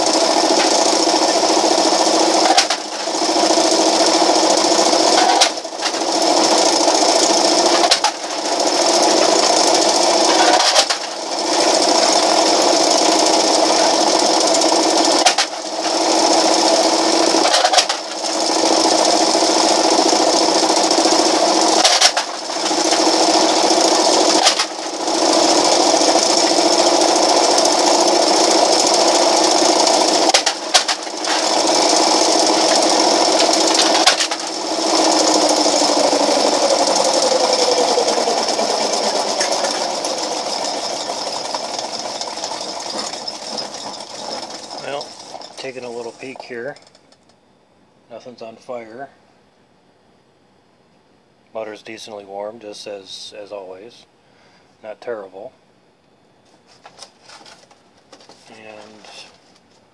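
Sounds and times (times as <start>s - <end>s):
can crusher motor running: 0.0s - 46.7s.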